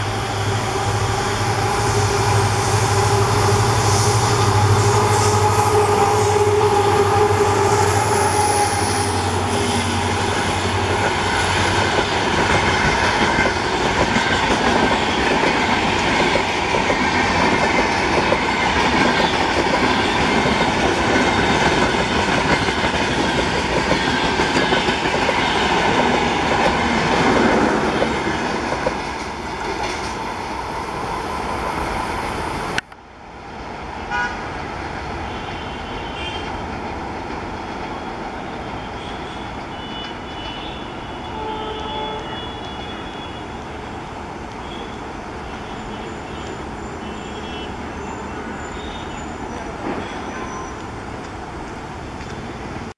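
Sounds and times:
diesel locomotive engine drone: 0.0s - 52.9s
train wheels on rails clattering: 3.0s - 30.6s, 48.8s - 51.4s.

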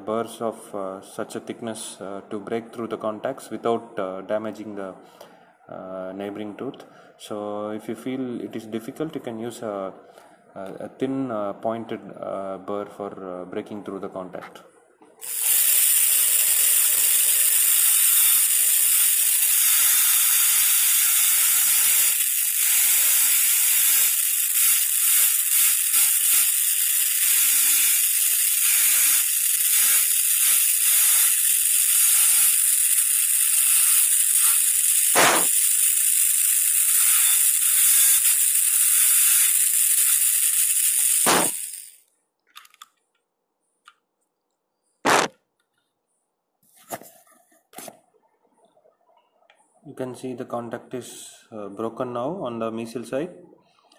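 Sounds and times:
dental drill whine and hiss: 15.2s - 41.9s
sharp clicks: 35.1s - 35.6s, 41.2s - 43.0s, 45.0s - 45.4s.

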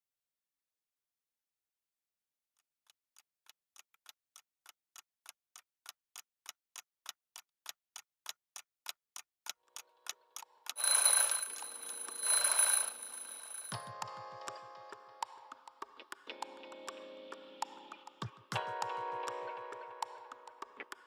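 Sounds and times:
clock ticking: 9.7s - 13.8s
alarm clock ringing: 10.8s - 13.8s.

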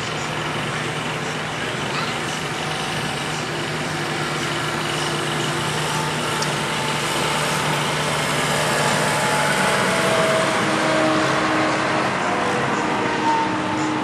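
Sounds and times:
tractor diesel engine running: 0.0s - 14.0s.

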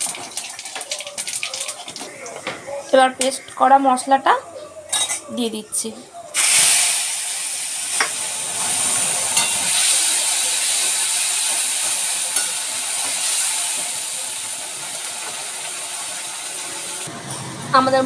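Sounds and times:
spice paste sizzling in oil: 6.4s - 17.1s.

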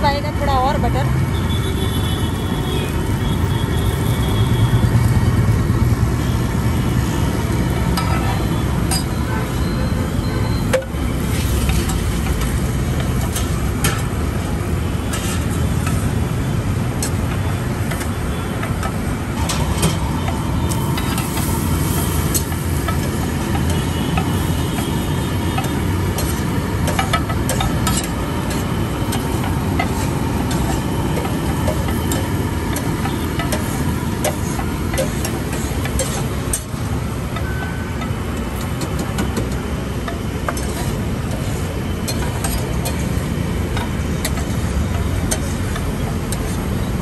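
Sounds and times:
road traffic rumble: 0.0s - 47.0s
steel spatula scraping griddle: 10.7s - 16.3s, 17.0s - 37.5s, 38.5s - 46.8s
flatbread sizzling on a griddle: 11.1s - 16.8s, 20.7s - 37.2s.

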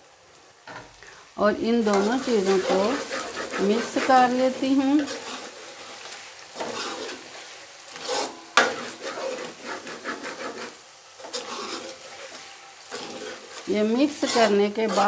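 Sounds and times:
faint sizzle: 0.0s - 15.0s
metal spoon scraping metal pot: 8.0s - 15.0s.

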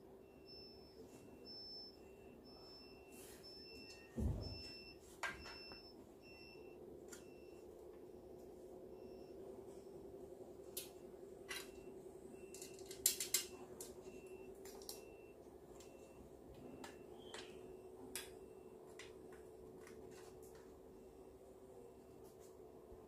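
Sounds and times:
parts clicking and knocking: 11.5s - 15.1s.

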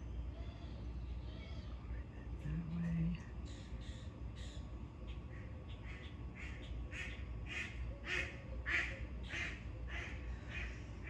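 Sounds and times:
duck quacking: 5.9s - 10.7s.

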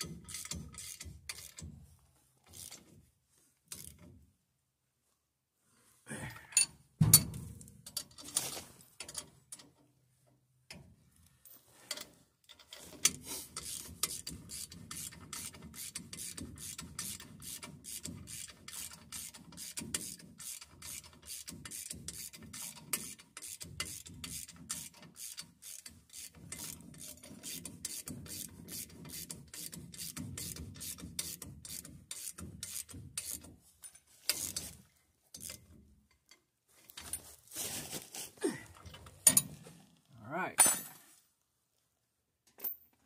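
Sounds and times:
hand ratchet wrench clicking: 0.0s - 1.6s, 3.7s - 4.1s, 13.0s - 33.5s, 34.3s - 34.7s, 35.3s - 35.6s.

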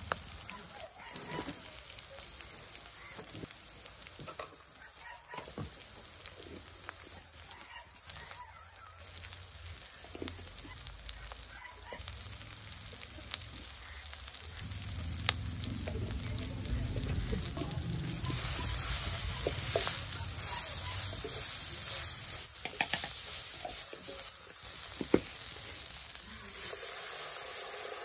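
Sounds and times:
onions and tomatoes frying: 0.0s - 28.0s
chickens calling: 13.2s - 22.5s
spoon tapping on pan: 22.6s - 23.2s.

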